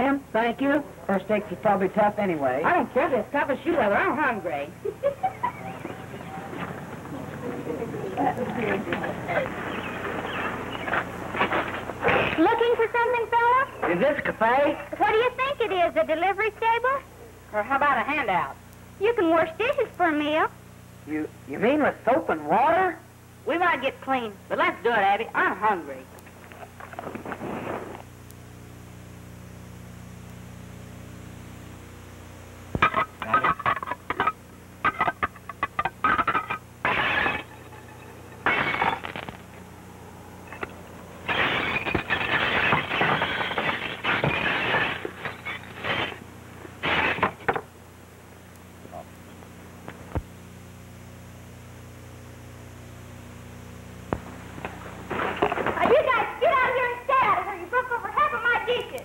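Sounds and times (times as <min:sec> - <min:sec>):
electrical hum and hiss: 0:00.0 - 0:59.0
faint hiss: 0:23.0 - 0:33.5.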